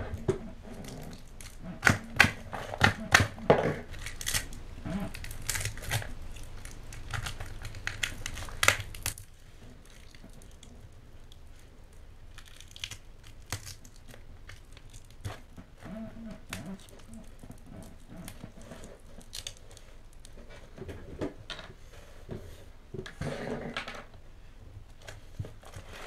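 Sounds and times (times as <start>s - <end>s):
tape and wrapping tearing: 0.2s - 9.4s.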